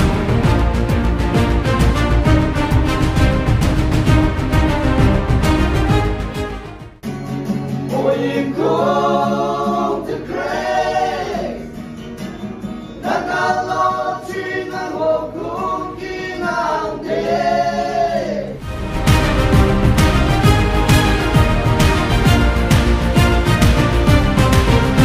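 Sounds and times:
acoustic guitar: 0:00.0 - 0:25.0
choir singing in harmony: 0:07.9 - 0:11.7, 0:13.0 - 0:25.0.

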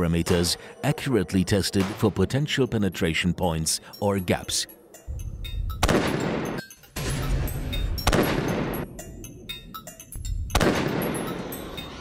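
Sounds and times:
rifle shots with echo: 0:05.8 - 0:07.2, 0:08.0 - 0:08.8, 0:10.6 - 0:11.3.

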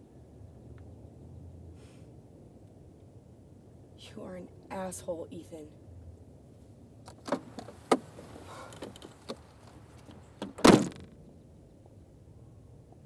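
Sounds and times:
car door shutting with thud: 0:07.1 - 0:09.4, 0:10.4 - 0:11.1
car door clicks: 0:07.1 - 0:11.1
rustling: 0:07.3 - 0:11.2.

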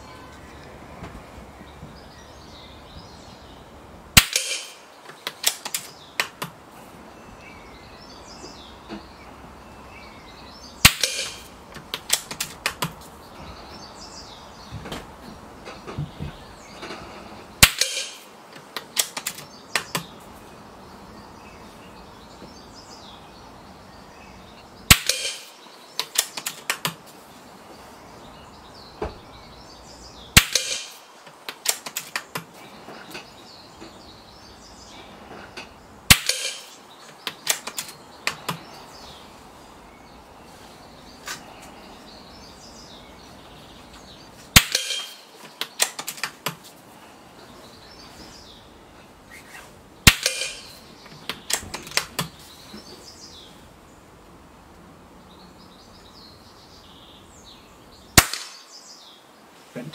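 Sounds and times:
air rifle shots: 0:04.2 - 0:06.4, 0:10.8 - 0:12.9, 0:17.6 - 0:20.0, 0:24.9 - 0:27.0, 0:30.3 - 0:32.5, 0:36.1 - 0:38.6, 0:44.5 - 0:46.4, 0:50.0 - 0:50.8, 0:58.2 - 0:58.7.

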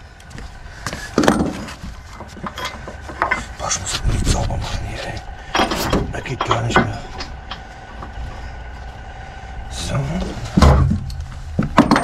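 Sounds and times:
metal tools scraping and knocking: 0:01.2 - 0:03.6.

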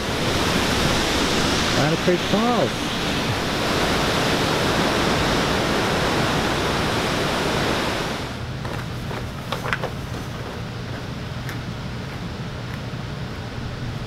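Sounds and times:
waterfall rushing: 0:00.0 - 0:08.4.

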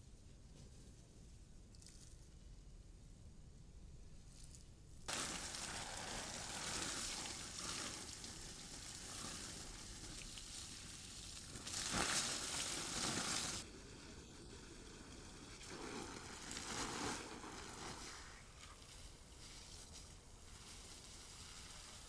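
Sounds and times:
water spraying from garden hose: 0:05.1 - 0:22.0.

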